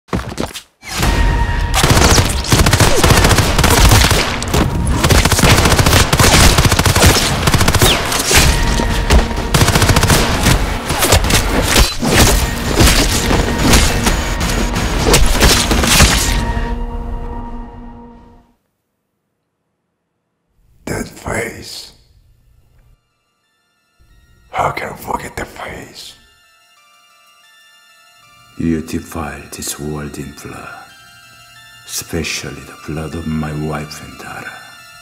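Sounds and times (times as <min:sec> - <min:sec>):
automatic rifle fire: 0:01.8 - 0:08.2.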